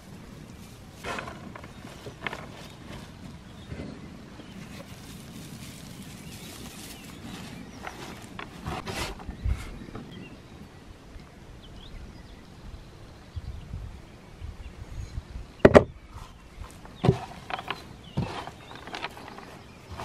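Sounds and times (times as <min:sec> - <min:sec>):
plastic bag crinkling: 0:04.6 - 0:08.6.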